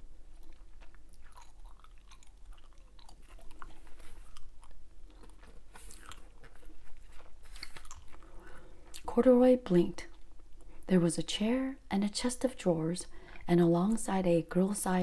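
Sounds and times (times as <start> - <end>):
mouth chewing gum: 0.3 - 9.1.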